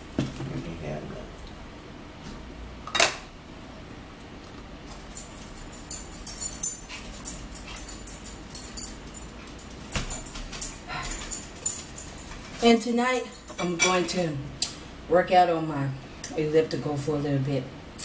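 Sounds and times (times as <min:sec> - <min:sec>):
dog collar tags jingling: 0:05.0 - 0:13.6.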